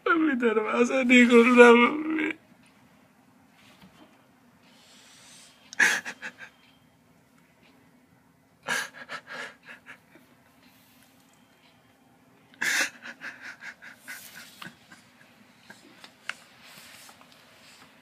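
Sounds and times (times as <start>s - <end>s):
man sobbing: 5.8s - 6.6s, 8.6s - 10.3s, 12.6s - 16.0s.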